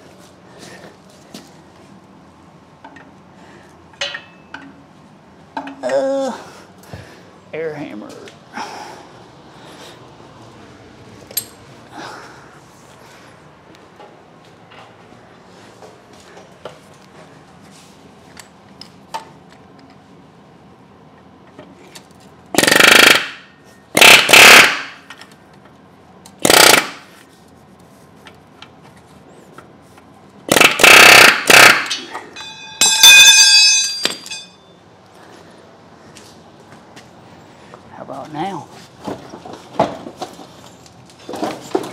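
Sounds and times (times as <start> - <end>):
high ringing whine: 3.9 - 4.9, 31.8 - 35.0
air impact wrench bursts: 22.5 - 25.0, 26.4 - 27.1, 30.5 - 32.1.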